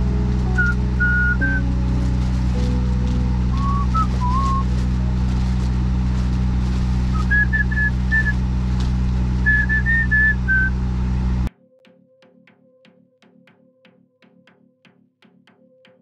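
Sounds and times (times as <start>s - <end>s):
truck engine idling: 0.0s - 11.5s
person whistling a tune: 0.6s - 1.6s, 3.5s - 4.6s, 7.2s - 8.4s, 9.5s - 10.7s.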